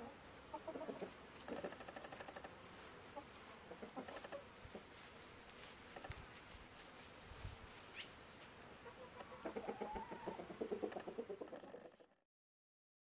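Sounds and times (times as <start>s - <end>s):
chickens clucking softly: 0.0s - 2.5s, 3.1s - 4.9s, 8.8s - 12.2s
pecking clicks and rustling in grass: 0.7s - 9.4s.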